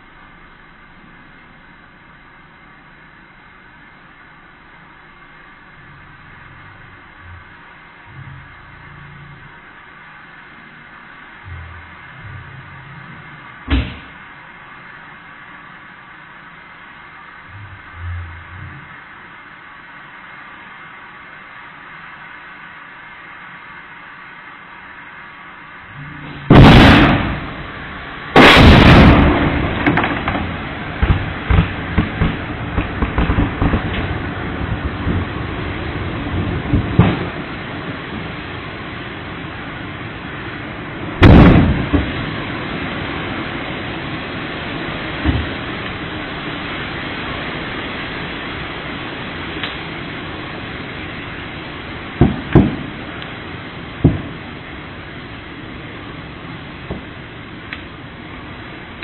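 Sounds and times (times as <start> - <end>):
fire rushing: 0.0 - 59.0
sharp crackles and pops: 0.0 - 59.0
loud explosion blasts: 13.6 - 14.2, 26.2 - 38.4, 41.2 - 42.9, 52.2 - 53.2, 54.0 - 54.5
sharp pops from fire: 13.6 - 14.2, 28.4 - 34.2, 36.7 - 37.4, 41.2 - 42.2, 49.6 - 50.0, 52.2 - 53.4.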